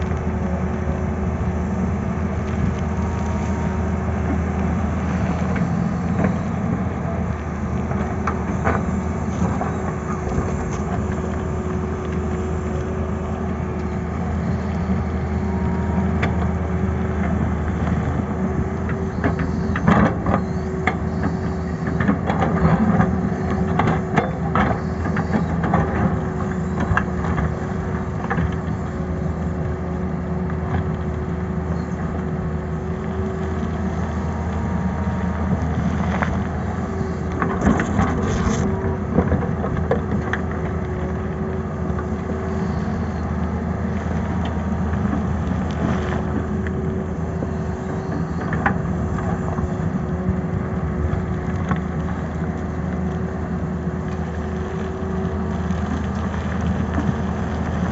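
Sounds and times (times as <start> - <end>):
excavator diesel engine running: 0.0 - 57.9
steel bucket scraping rock: 37.5 - 38.7.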